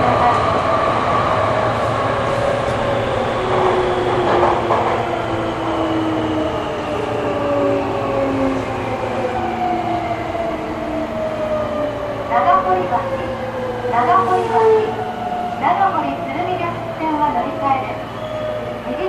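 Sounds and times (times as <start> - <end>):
wheels rumbling on rail: 0.0 - 19.0.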